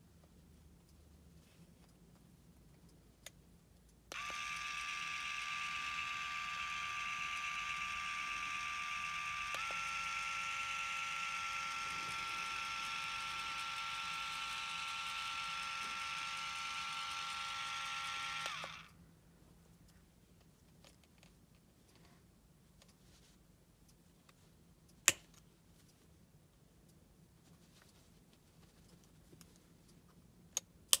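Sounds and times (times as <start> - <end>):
nail clipper motor whining: 4.1 - 18.9.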